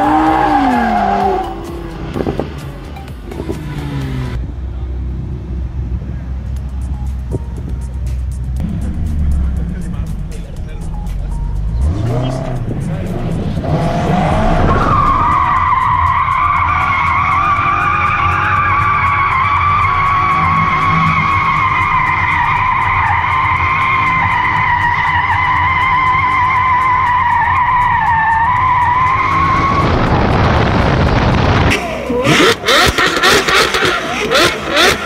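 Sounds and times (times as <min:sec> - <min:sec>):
car tyres squealing: 0:00.0 - 0:02.5, 0:11.6 - 0:35.0
car engine rumbling: 0:00.0 - 0:35.0.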